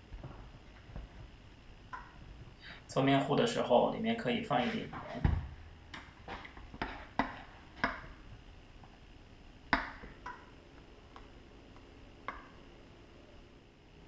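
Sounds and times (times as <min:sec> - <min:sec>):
spoon stirring batter in bowl: 0:06.0 - 0:08.2.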